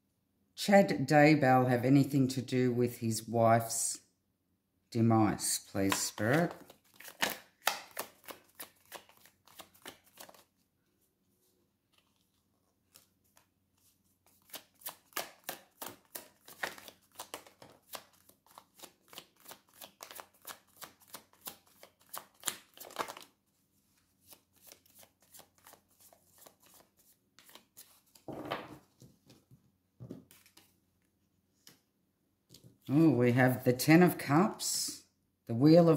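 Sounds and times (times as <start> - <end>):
cards being shuffled: 5.6 - 10.6, 11.9 - 29.4, 30.0 - 30.8.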